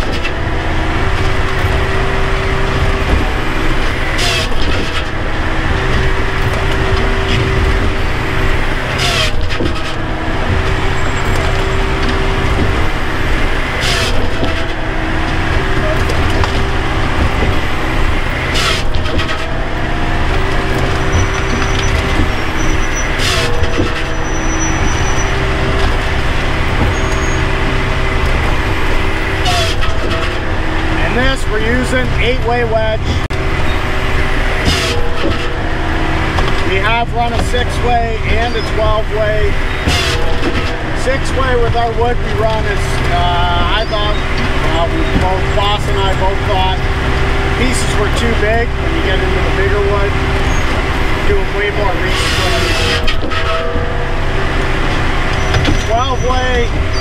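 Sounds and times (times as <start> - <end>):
engine and hydraulic drone: 0.0 - 57.0
sharp crack of splitting logs: 2.9 - 5.2, 8.7 - 24.2, 34.3 - 35.6.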